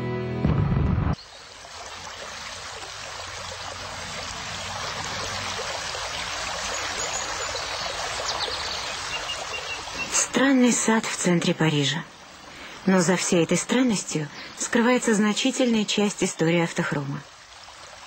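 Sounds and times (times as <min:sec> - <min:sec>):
music: 0:00.0 - 0:01.2
water trickling and splashing: 0:01.2 - 0:18.0.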